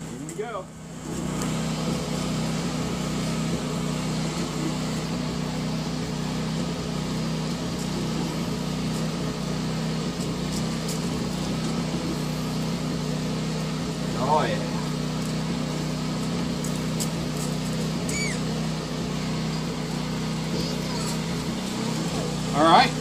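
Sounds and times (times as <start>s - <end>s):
blower humming: 0.0s - 23.0s
oil crackling: 14.8s - 20.3s.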